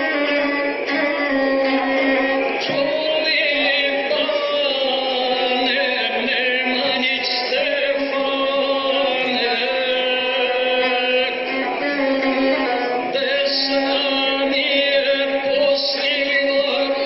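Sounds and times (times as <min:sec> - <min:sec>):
bowed fiddle playing: 0:00.0 - 0:17.0.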